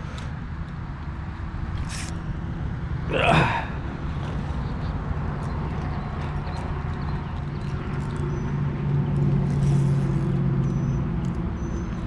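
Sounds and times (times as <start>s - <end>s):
man sighing: 3.1s - 3.8s.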